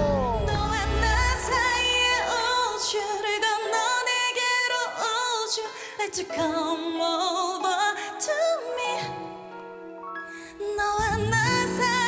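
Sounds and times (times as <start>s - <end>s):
backing track: 0.0s - 5.3s
woman singing pop ballad: 0.0s - 9.6s, 10.3s - 12.0s.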